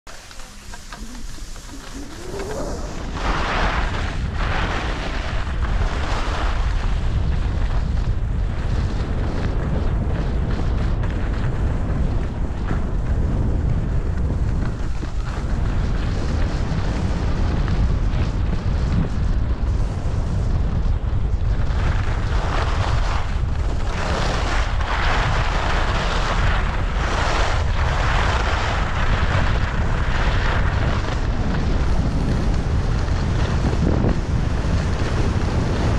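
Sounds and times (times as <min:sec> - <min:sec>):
skis scraping over snow: 0:00.1 - 0:35.9
wind buffeting microphone: 0:00.5 - 0:35.9.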